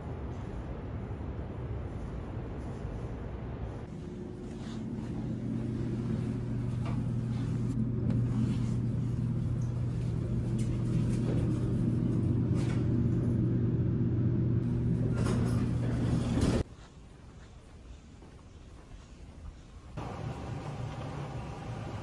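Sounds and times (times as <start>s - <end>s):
elevator electrical hum: 0.0s - 17.5s, 19.8s - 22.0s.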